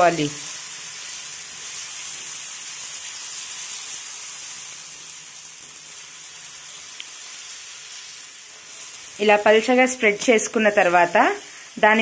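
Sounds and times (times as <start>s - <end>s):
batter sizzling on a griddle: 0.0s - 12.0s.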